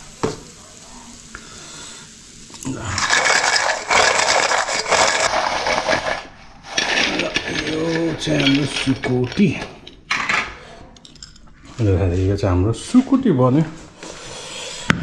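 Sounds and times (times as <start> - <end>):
food clattering off metal plate: 2.9 - 11.5.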